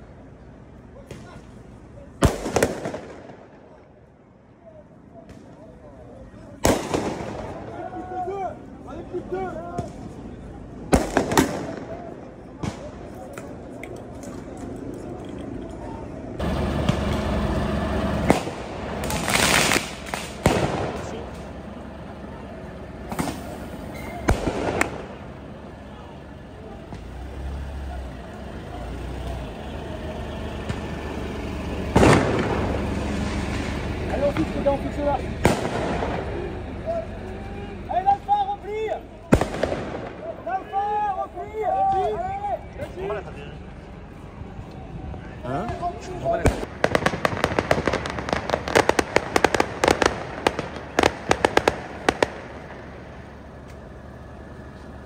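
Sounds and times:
vehicle engine low rumble: 0:00.0 - 0:55.0
fireworks cracking: 0:02.2 - 0:03.8, 0:06.6 - 0:08.2, 0:10.9 - 0:14.9, 0:18.1 - 0:25.7, 0:31.9 - 0:36.8, 0:39.2 - 0:40.9, 0:45.6 - 0:53.9.

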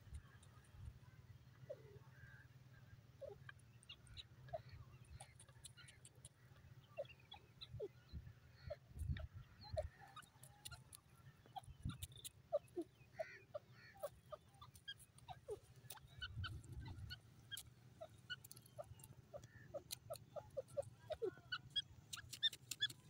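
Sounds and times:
faint clicks: 0:00.0 - 0:00.9, 0:05.0 - 0:06.5, 0:10.2 - 0:12.4, 0:17.5 - 0:23.0.

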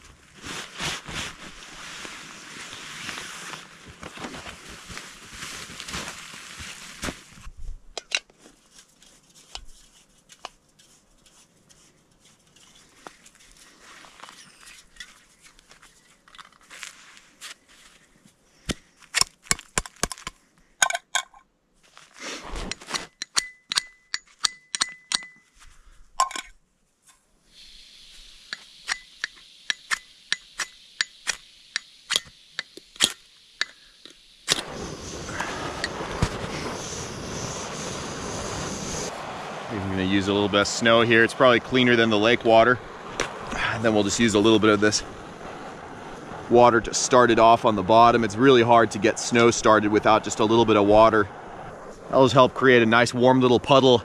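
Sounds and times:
metal clicks and clinks: 0:23.0 - 0:25.6, 0:26.2 - 0:26.6
gas hissing from stove: 0:27.5 - 0:52.9.

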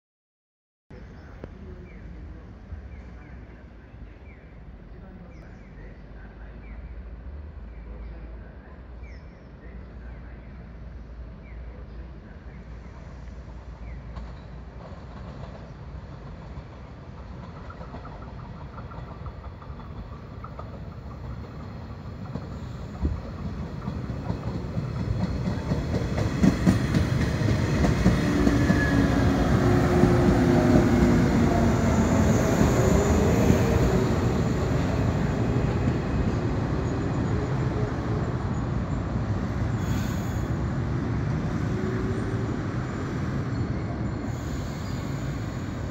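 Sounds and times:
train passing: 0:10.6 - 0:45.9
train clattering over rail joints: 0:13.9 - 0:31.1.

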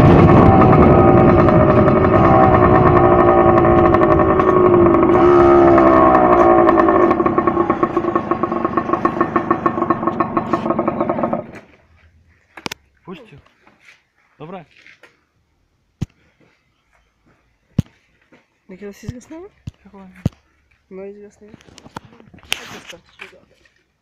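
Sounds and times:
two-stroke motorcycle engine: 0:00.0 - 0:11.8.

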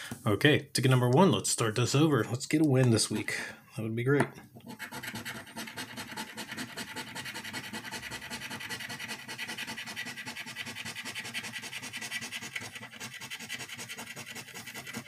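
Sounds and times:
coin scratching lottery ticket: 0:04.7 - 0:15.0.

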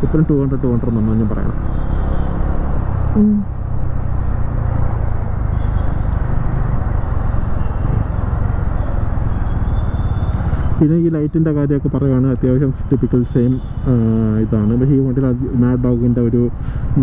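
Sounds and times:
motorcycle engine and road rumble: 0:00.0 - 0:17.0
wind noise on microphone: 0:07.6 - 0:08.4.

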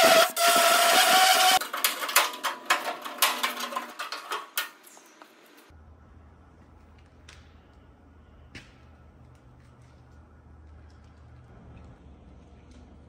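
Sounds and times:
pneumatic tool cutting sheet metal: 0:00.0 - 0:01.9
metallic clicks and clatters: 0:01.6 - 0:05.7.

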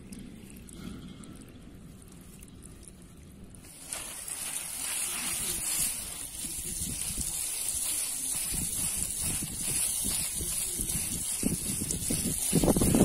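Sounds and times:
water spraying on plants: 0:03.6 - 0:13.0.

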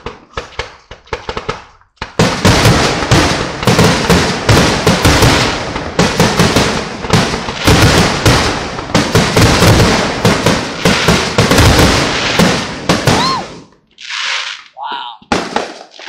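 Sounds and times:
fireworks booming and crackling: 0:00.0 - 0:16.0
firework whistle: 0:13.1 - 0:13.6.

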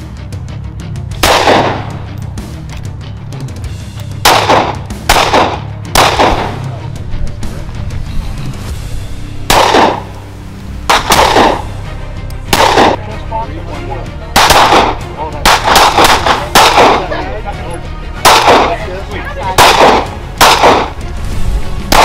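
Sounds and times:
background music: 0:00.0 - 0:22.0
handgun shots with echo: 0:01.2 - 0:02.0, 0:04.2 - 0:06.6, 0:09.5 - 0:10.1, 0:10.9 - 0:11.6, 0:12.5 - 0:13.0, 0:14.4 - 0:17.1, 0:18.2 - 0:18.8, 0:19.6 - 0:21.0.

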